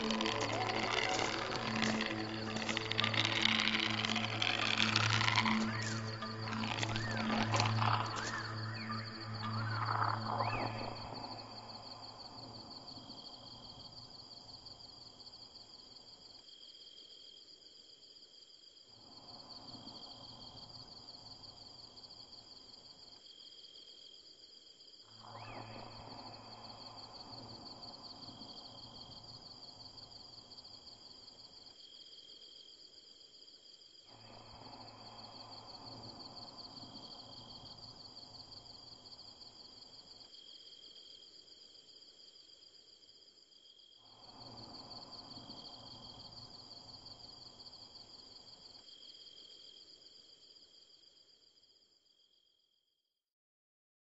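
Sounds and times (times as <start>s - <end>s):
insect chorus chirring: 0.0s - 17.3s, 25.0s - 32.8s, 33.4s - 42.5s, 43.5s - 51.0s.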